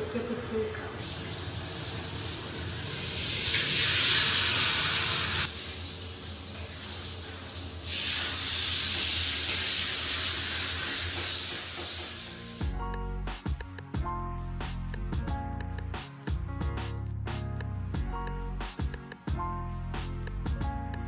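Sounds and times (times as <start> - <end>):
water running into bathtub: 0.0 - 12.6.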